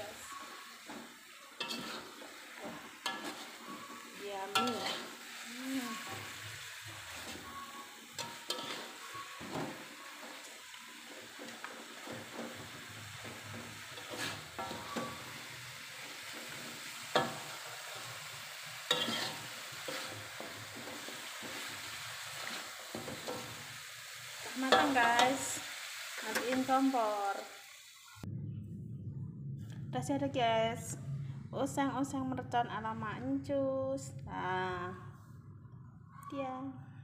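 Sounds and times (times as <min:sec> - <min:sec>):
food sizzling in a wok: 0:00.0 - 0:28.2
metal spatula scraping a pan: 0:00.4 - 0:26.7.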